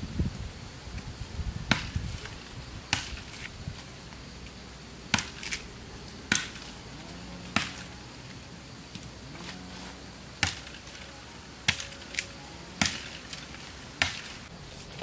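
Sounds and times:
machete chopping undergrowth: 1.7s - 3.9s, 5.1s - 5.7s, 6.3s - 8.0s, 10.4s - 14.6s.

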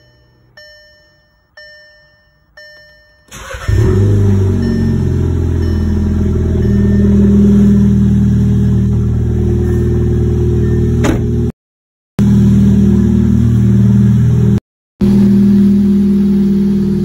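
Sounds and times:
car engine running: 3.3s - 11.5s, 12.2s - 17.0s.

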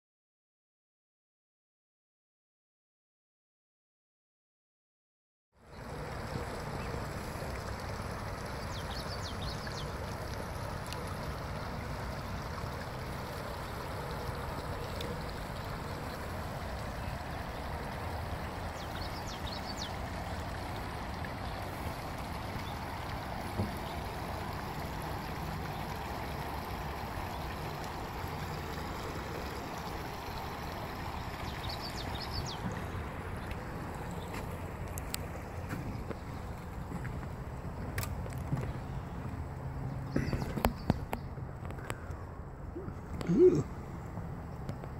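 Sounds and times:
creek running over rocks: 5.6s - 44.9s.

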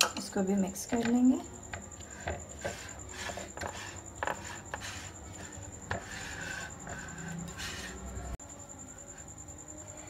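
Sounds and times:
spatula scraping glass bowl: 2.0s - 8.4s.

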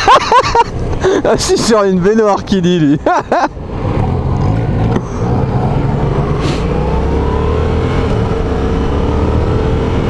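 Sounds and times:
motorcycle engine accelerating: 3.6s - 10.0s.

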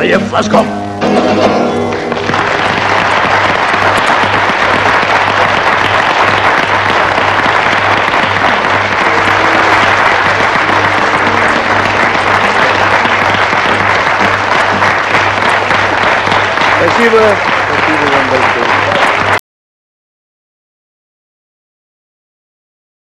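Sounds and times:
audience applauding: 1.5s - 19.4s.

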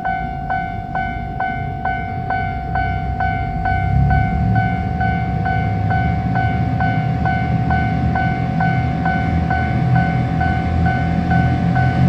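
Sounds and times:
level crossing warning bell: 0.0s - 12.0s
low rumble: 0.0s - 12.0s.

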